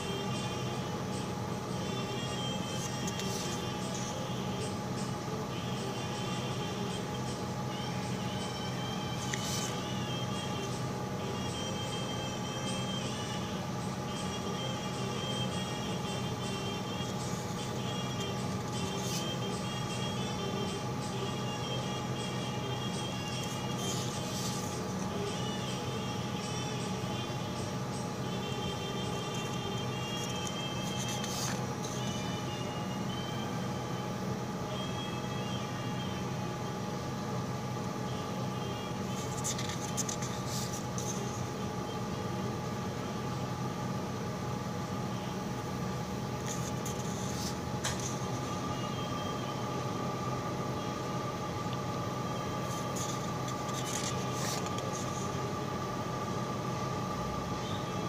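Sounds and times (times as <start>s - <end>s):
mechanical hum: 0.0s - 58.0s
paper sheets rustling: 2.6s - 4.1s, 9.2s - 9.8s, 23.4s - 25.1s, 30.1s - 32.2s, 39.1s - 41.3s, 46.4s - 48.5s, 52.6s - 55.3s.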